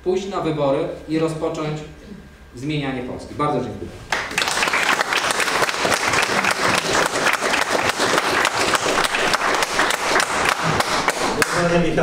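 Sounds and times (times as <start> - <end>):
audience applauding: 4.1 - 11.7.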